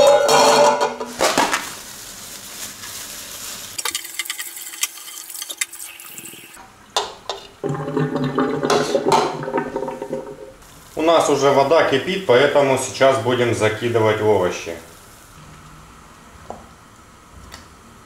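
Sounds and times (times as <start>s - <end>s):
water splashing into sink: 3.8s - 10.6s.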